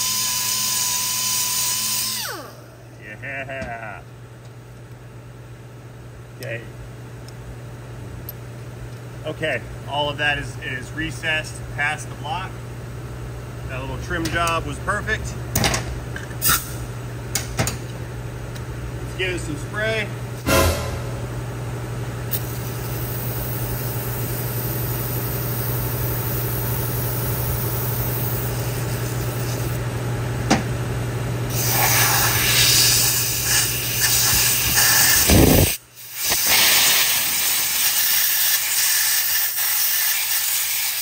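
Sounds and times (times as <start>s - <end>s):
steady low hum: 2.2s - 36.3s
aerosol spray can hissing: 31.5s - 41.0s.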